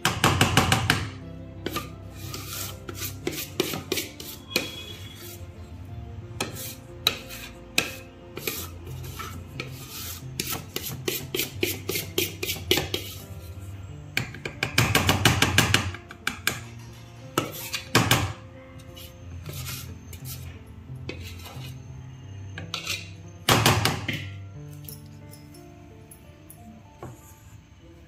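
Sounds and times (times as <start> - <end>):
utensil scraping container: 1.6 - 5.5, 6.4 - 13.3, 18.8 - 21.9, 22.6 - 23.2.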